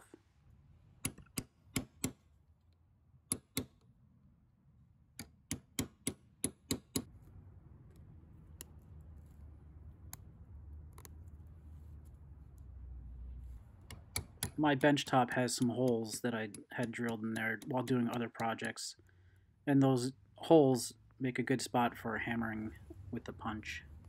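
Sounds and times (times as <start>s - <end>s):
hammer tapping metal punch: 5.2s - 7.1s, 13.9s - 18.8s.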